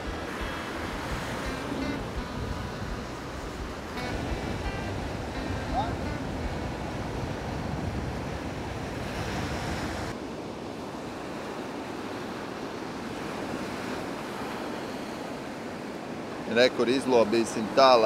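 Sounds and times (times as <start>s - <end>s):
wind buffeting microphone: 0.0s - 10.2s
surf washing on shore: 0.0s - 18.0s.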